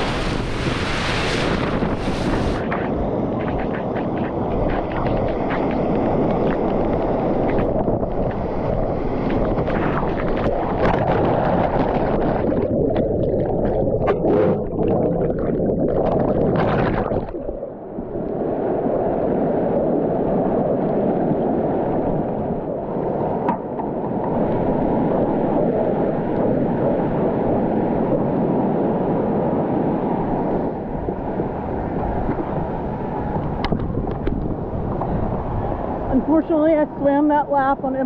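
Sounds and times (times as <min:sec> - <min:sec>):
rushing whitewater: 0:00.0 - 0:15.0.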